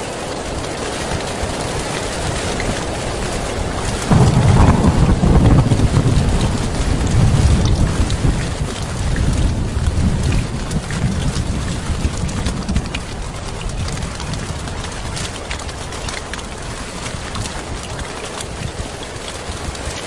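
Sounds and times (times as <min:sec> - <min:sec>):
heavy rain falling: 0:00.0 - 0:20.0
deep rumble of thunder: 0:01.4 - 0:20.0.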